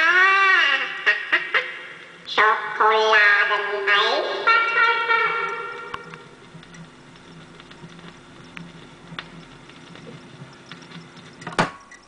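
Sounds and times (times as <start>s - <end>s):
record surface crackle and clicks: 3.2s - 12.0s
low pulsing hum: 4.8s - 12.0s.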